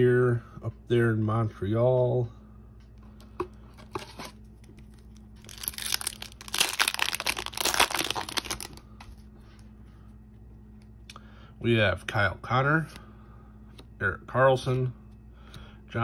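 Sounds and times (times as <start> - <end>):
foil wrapper crinkling: 4.7 - 8.8
foil wrapper tearing: 5.4 - 8.8.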